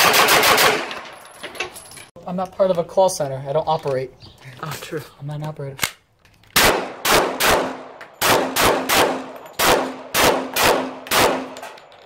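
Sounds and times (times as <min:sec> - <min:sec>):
pistol shots with echo: 0:06.6 - 0:11.8.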